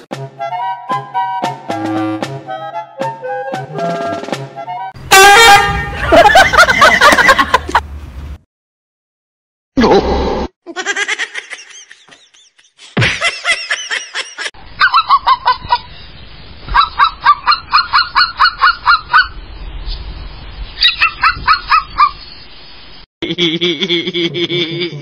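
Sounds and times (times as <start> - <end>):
cat chirping: 20.8 - 22.2.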